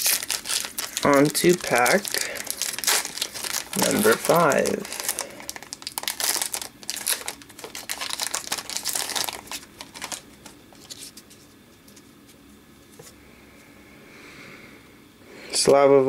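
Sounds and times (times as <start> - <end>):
foil wrapper tearing and crinkling: 0.0 - 11.2.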